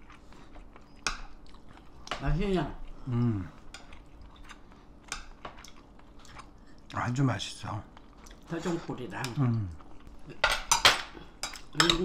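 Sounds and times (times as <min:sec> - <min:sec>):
soft chewing: 0:00.0 - 0:12.0.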